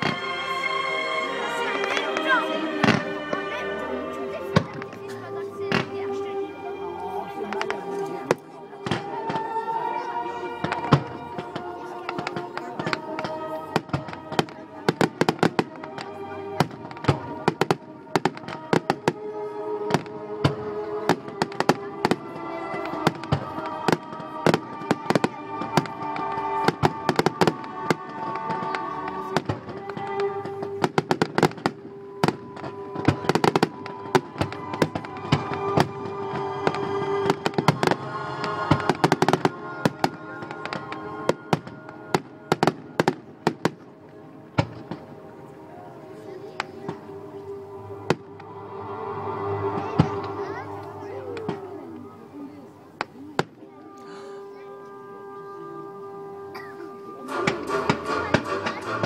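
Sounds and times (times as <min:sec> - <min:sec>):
music playing: 0:00.0 - 0:59.0
fireworks bangs and crackles: 0:10.6 - 0:19.2, 0:19.8 - 0:45.1.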